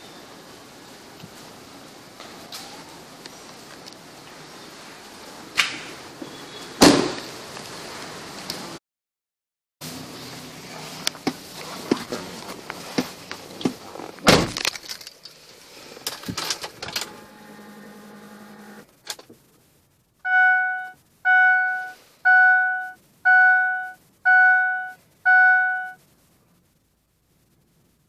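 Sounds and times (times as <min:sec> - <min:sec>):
loud thump: 0:06.8 - 0:07.2
dashboard warning chime: 0:20.3 - 0:26.0.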